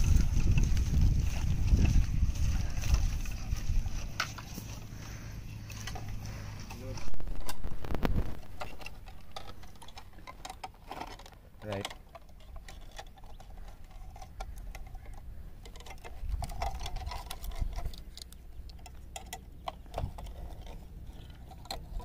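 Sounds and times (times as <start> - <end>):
plastic bottle crackling: 0.0 - 18.4
wire being twisted: 5.7 - 22.0.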